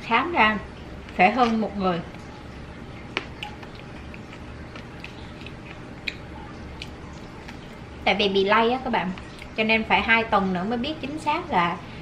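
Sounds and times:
fried chicken being chewed: 0:00.9 - 0:08.1, 0:09.1 - 0:09.6.

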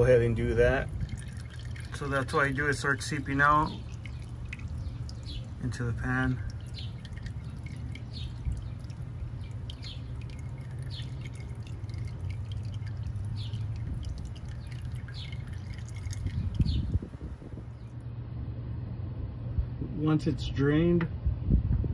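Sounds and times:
steady low hum: 0:00.0 - 0:21.9
oil dripping into a pan: 0:00.7 - 0:17.5.

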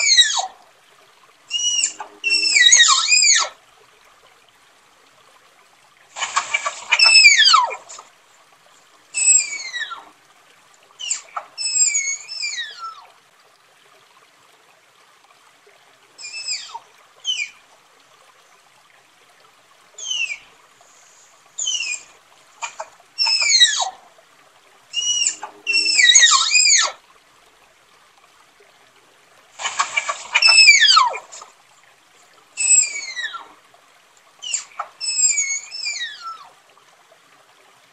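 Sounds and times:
tapir whistling squeals: 0:01.5 - 0:03.5, 0:06.4 - 0:08.0, 0:09.2 - 0:10.0, 0:11.0 - 0:13.0, 0:16.2 - 0:17.5, 0:20.0 - 0:20.4, 0:21.6 - 0:22.1, 0:22.7 - 0:23.9, 0:25.0 - 0:27.0, 0:29.6 - 0:31.4, 0:32.6 - 0:33.5, 0:34.4 - 0:36.5.

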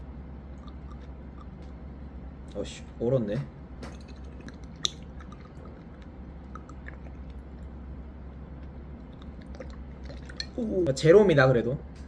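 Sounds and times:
liquid trickling into glass: 0:09.2 - 0:10.6.

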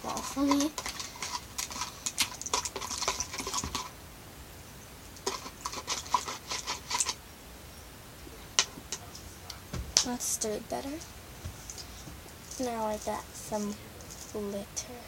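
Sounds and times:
spoon scraping slime: 0:00.0 - 0:03.9, 0:05.2 - 0:07.2.

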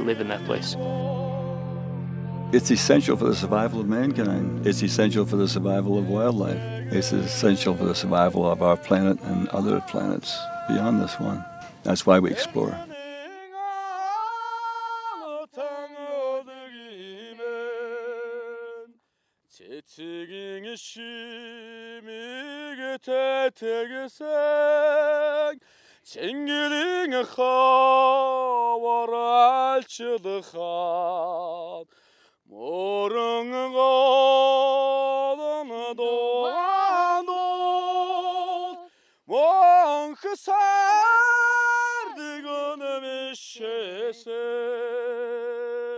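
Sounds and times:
person singing unaccompanied: 0:00.0 - 0:19.0, 0:32.6 - 0:45.9.

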